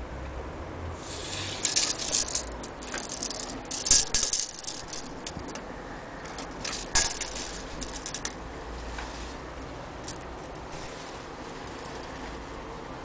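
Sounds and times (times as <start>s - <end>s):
tape measure rattling: 1.2s - 8.4s.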